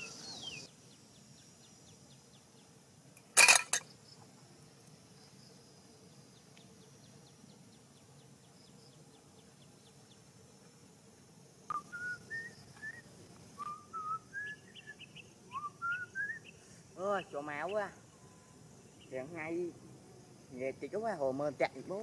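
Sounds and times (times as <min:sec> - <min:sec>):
rising whistled notes: 0:11.7 - 0:13.0, 0:13.6 - 0:16.4.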